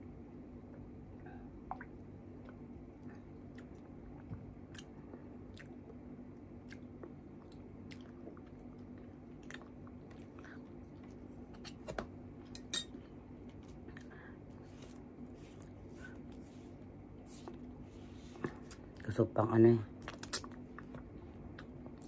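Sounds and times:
person chewing: 2.4s - 6.0s, 6.6s - 11.3s, 20.0s - 22.0s.

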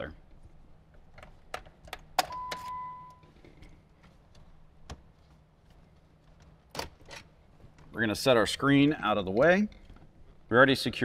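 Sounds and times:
electronic beep: 2.3s - 3.3s.

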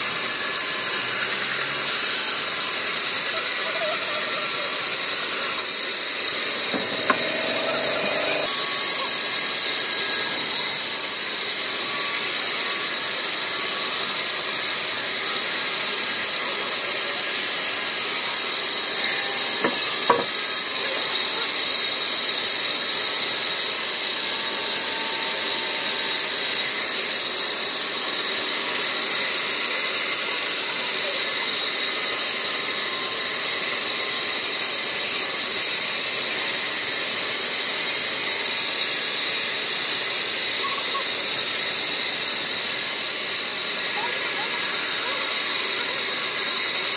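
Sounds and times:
band saw cutting wood: 0.0s - 46.9s
sharp knocks: 6.6s - 8.5s, 19.7s - 20.3s.

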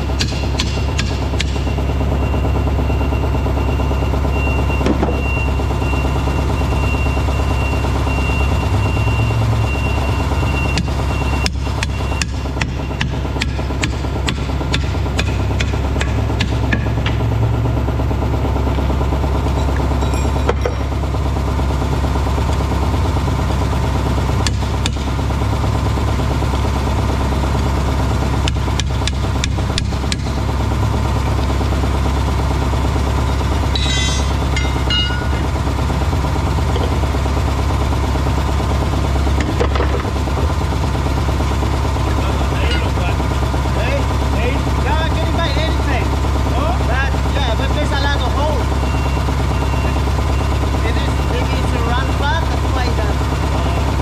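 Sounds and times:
engine idling: 0.0s - 54.0s
hammer clanking on steel rim: 33.8s - 35.4s.

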